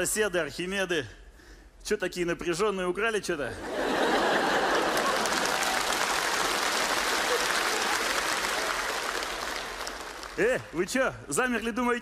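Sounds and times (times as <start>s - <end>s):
audience applauding: 3.8s - 10.6s.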